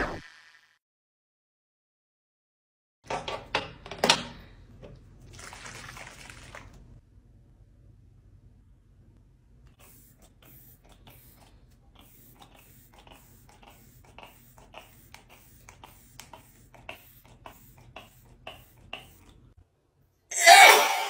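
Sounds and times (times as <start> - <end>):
spray bottle mist hisses: 9.8 - 19.2.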